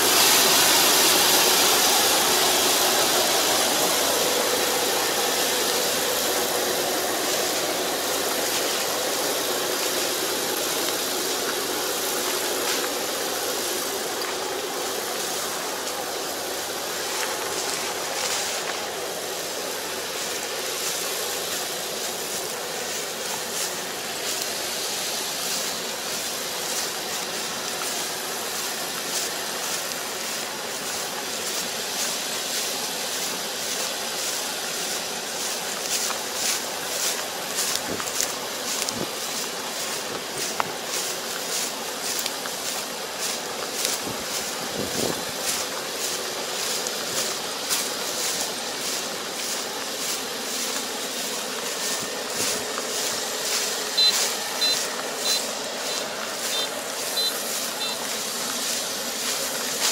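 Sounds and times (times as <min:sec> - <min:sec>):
combine harvester rushing noise: 0:00.0 - 0:59.9
pulsing high hiss: 0:00.0 - 0:59.9
high reversing beep: 0:53.9 - 0:58.1.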